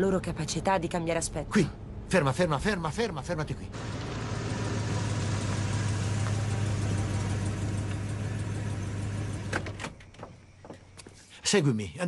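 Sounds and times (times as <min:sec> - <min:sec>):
car engine and tyre hum: 0:03.3 - 0:09.9.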